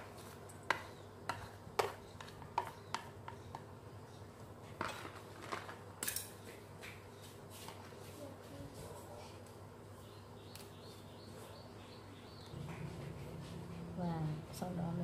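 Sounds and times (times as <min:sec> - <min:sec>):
chopsticks tapping and scraping: 0:00.0 - 0:03.7.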